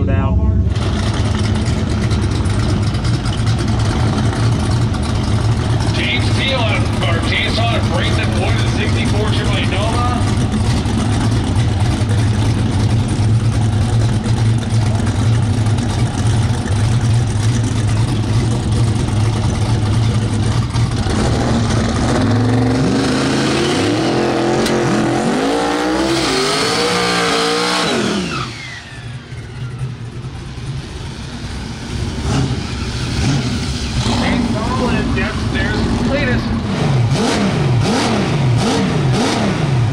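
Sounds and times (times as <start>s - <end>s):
drag car engine revving: 0.6s - 39.9s.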